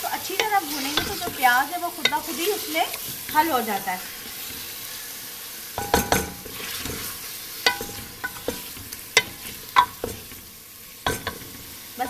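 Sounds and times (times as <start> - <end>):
chicken sizzling: 0.0 - 12.0
spoon knocking and scraping pot: 5.8 - 10.4, 11.0 - 11.6.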